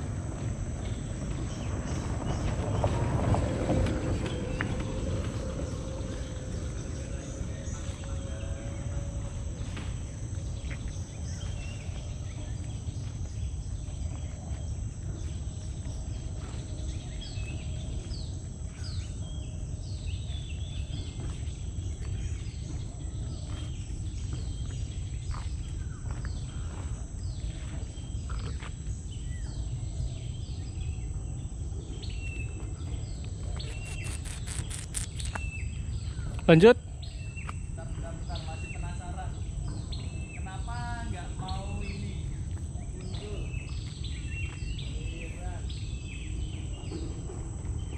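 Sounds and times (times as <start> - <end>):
high insect drone: 0.0 - 14.4, 33.5 - 35.6
birds chirping: 33.4 - 36.7.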